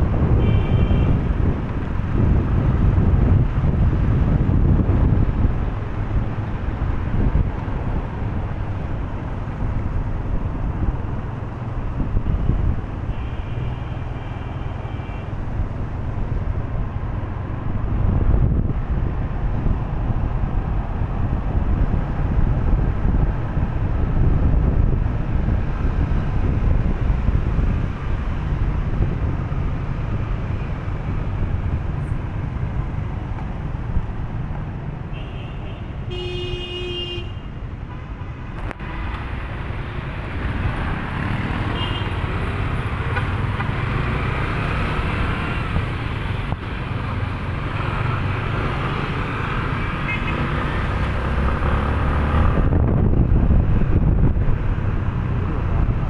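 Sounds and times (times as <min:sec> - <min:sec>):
road and traffic noise: 0:00.0 - 0:56.0
wind rumbling on microphone: 0:00.0 - 0:56.0.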